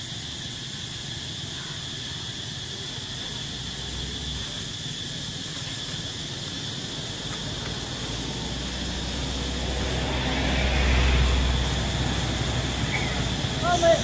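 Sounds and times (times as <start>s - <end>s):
insects droning: 0.0s - 14.0s
vehicle driving past: 6.8s - 14.0s.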